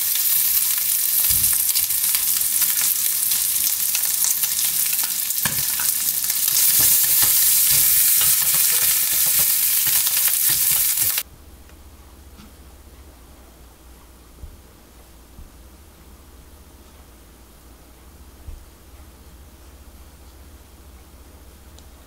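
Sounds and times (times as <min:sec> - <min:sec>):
bacon sizzling in a frying pan: 0:00.0 - 0:11.2
tongs clicking and tapping: 0:01.3 - 0:11.2.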